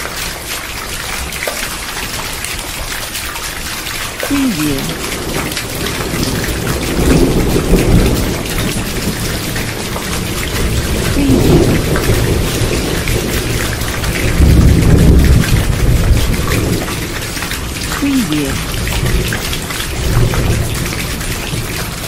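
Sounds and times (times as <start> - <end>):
heavy rain falling: 0.0 - 22.0
thunder rumbling: 10.6 - 17.2.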